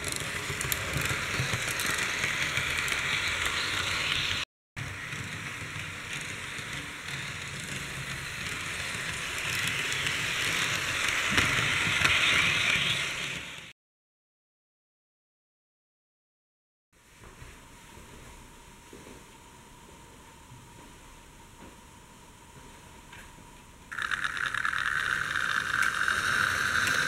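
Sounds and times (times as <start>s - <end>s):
wheels rattling over rails: 0.0s - 13.6s, 23.9s - 27.0s
small electric motor whirring: 23.9s - 27.0s.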